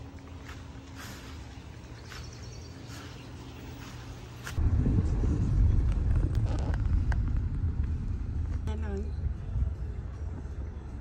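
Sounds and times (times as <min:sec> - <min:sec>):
car driving rumble from inside: 0:04.6 - 0:09.0.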